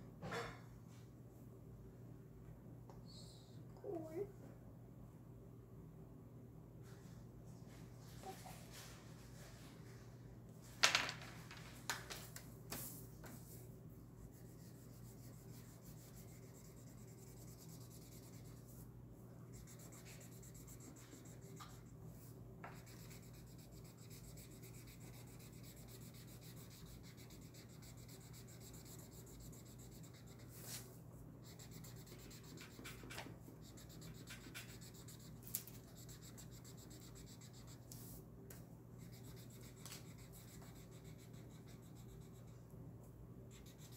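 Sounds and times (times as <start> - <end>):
faint steady hum: 0.0 - 43.9
marker scratching on paper: 14.3 - 18.8, 19.5 - 21.8, 22.7 - 30.8, 31.4 - 38.0, 39.0 - 42.5.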